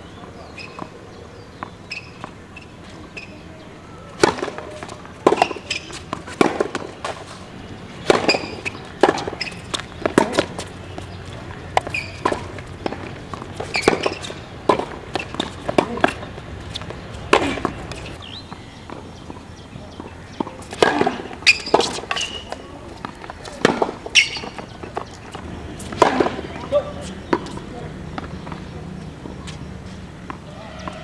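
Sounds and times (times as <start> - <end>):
tennis ball hit by racquets: 4.1 - 29.6
ball bouncing on hard court: 8.0 - 18.3.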